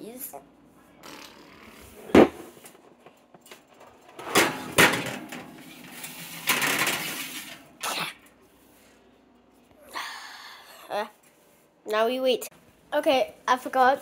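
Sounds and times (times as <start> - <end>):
clattering knocks: 2.1 - 7.6.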